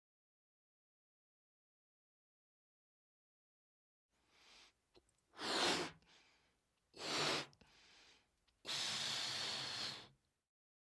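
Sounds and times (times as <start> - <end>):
person breathing heavily: 4.3 - 10.2.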